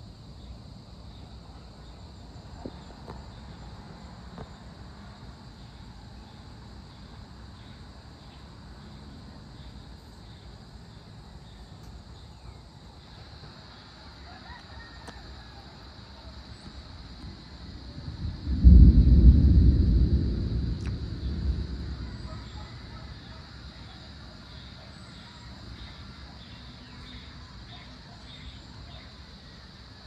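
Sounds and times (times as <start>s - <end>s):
insects chirring: 0.0s - 30.0s
low rumble of thunder: 16.6s - 26.1s.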